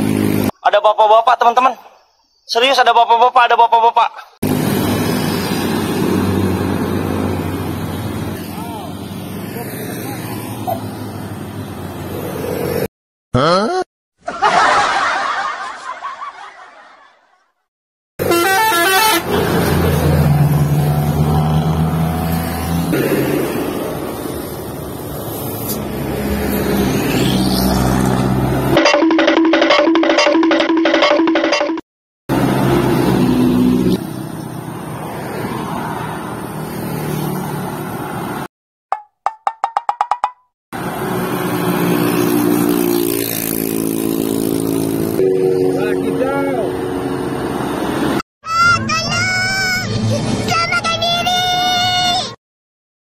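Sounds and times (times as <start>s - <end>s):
road traffic noise: 0.0s - 1.9s, 2.5s - 13.7s, 18.2s - 52.4s
dump truck diesel engine: 4.4s - 9.6s, 45.1s - 48.2s
car engine passing: 4.4s - 12.9s, 19.1s - 28.8s, 32.3s - 38.5s
cartoon popping sound effect: 13.4s - 13.8s, 38.9s - 40.5s
snickering laugh sound effect: 13.4s - 17.3s.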